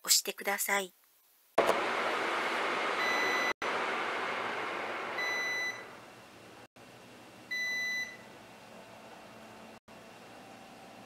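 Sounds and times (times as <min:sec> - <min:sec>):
air conditioner beeping: 0:02.9 - 0:03.6, 0:05.1 - 0:06.0, 0:07.5 - 0:08.3.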